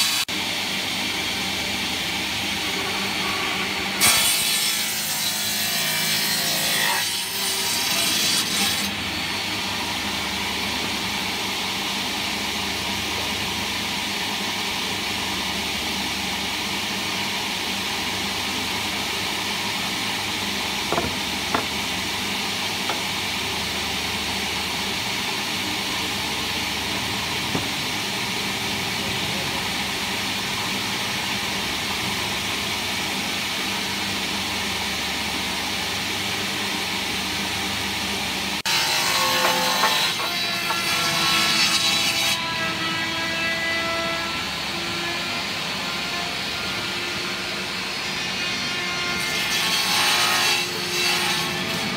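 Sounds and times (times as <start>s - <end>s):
table saw cutting wood: 0.0s - 51.9s
wood knocking: 20.9s - 21.8s, 27.5s - 27.8s.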